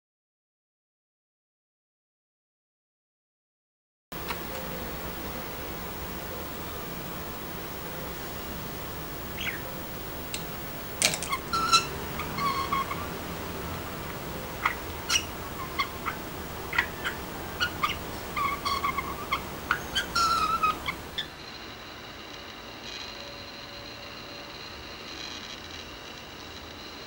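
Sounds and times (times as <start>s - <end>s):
budgerigar chattering: 9.3s - 9.8s, 11.2s - 21.3s.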